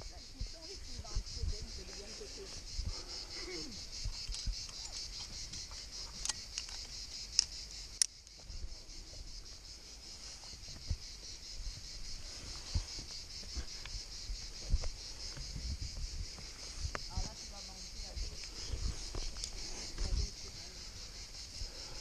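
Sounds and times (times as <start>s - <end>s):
high insect chorus: 0.0s - 22.0s
sharp clicks: 4.2s - 8.3s.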